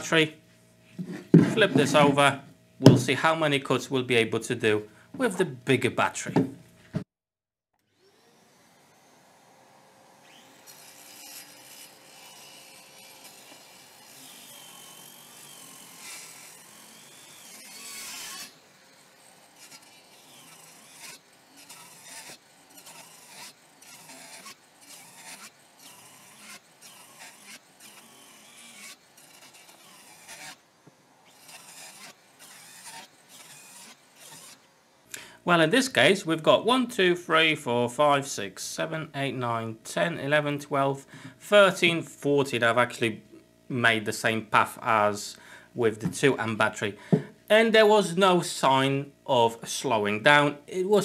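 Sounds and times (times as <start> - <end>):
circular saw cutting wood: 1.0 - 3.7, 7.8 - 34.7.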